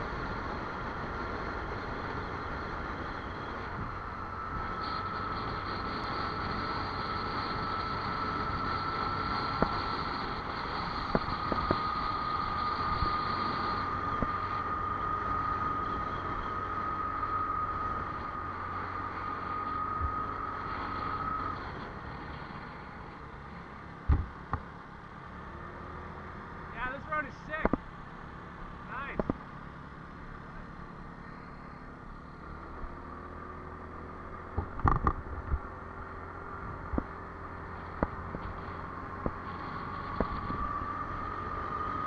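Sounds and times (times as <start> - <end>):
steady high whine: 0.0 - 42.0
vehicle wind noise: 0.0 - 42.0.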